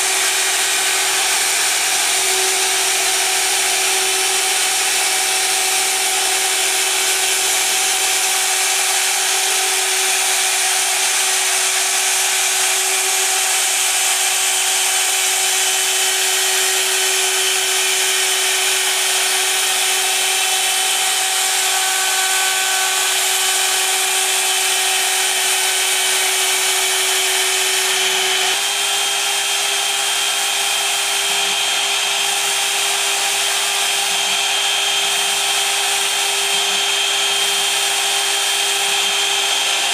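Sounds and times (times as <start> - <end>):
engraving spindle whine: 0.0 - 39.9.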